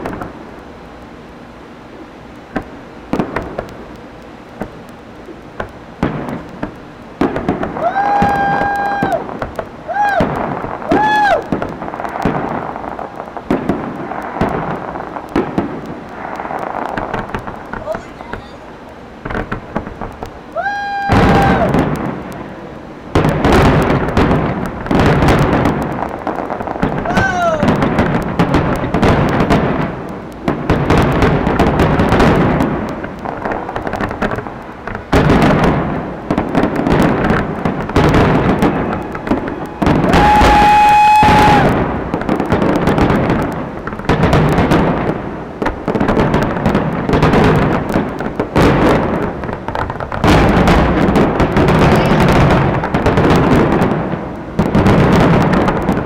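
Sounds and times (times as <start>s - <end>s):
fireworks bursting: 0.0s - 56.0s
steady firework whistle: 1.9s - 33.0s, 35.1s - 43.7s
falling firework whistle: 6.1s - 12.8s, 19.4s - 29.7s, 35.2s - 43.6s.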